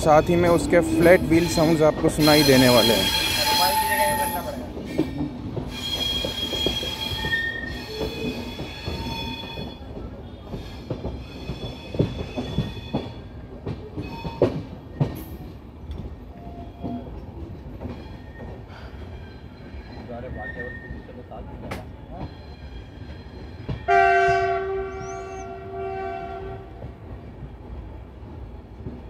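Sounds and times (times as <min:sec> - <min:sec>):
train wheels rolling on rails: 0:00.0 - 0:29.0
high wheel squeal: 0:00.1 - 0:05.1, 0:05.7 - 0:09.9, 0:17.9 - 0:21.3, 0:22.1 - 0:23.9.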